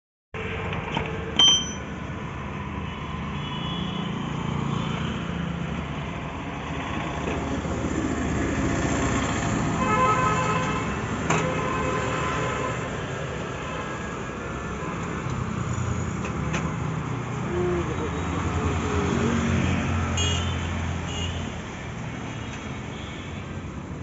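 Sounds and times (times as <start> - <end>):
sharp metallic clink: 1.4 - 2.0.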